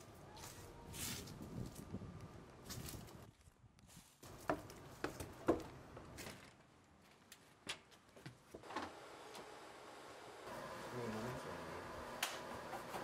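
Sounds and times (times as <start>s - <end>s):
footsteps: 2.6s - 8.7s.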